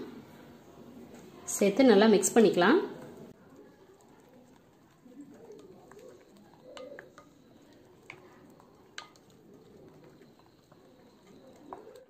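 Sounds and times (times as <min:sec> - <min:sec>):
wet squishing of paste: 0:03.0 - 0:12.0.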